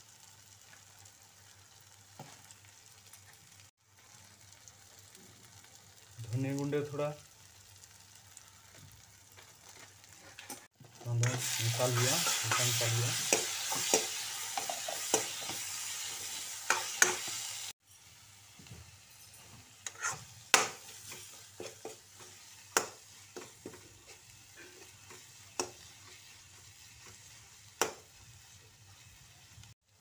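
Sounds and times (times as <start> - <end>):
sauce sizzling in hot oil: 0.0 - 30.0
metal ladle scraping pan: 19.8 - 22.4.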